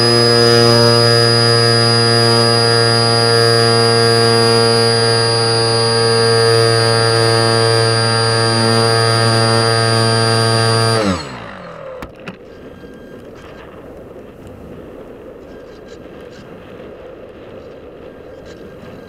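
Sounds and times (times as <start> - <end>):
electric motor propeller whine: 0.0 - 16.3.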